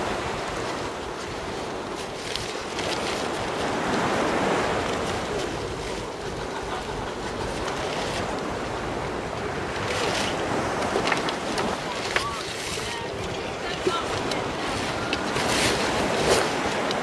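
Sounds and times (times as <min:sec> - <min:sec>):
rushing wind and water: 0:00.0 - 0:17.0
wind buffeting microphone: 0:02.6 - 0:17.0.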